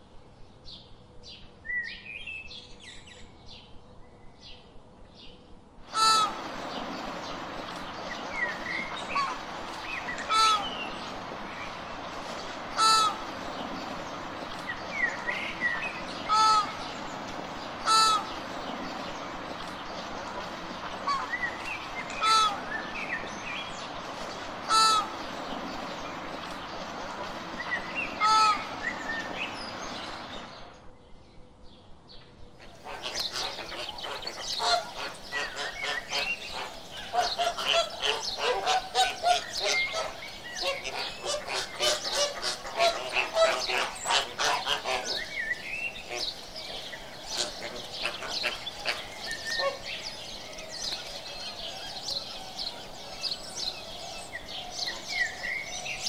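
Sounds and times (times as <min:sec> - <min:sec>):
flamingos honking: 0:05.9 - 0:30.5, 0:32.8 - 0:52.0.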